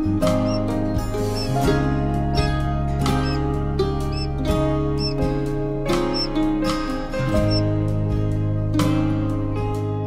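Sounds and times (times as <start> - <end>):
quail chicks peeping: 0.0 - 4.4, 5.0 - 5.3, 6.0 - 6.4, 7.4 - 7.7
acoustic guitar music: 0.0 - 10.0.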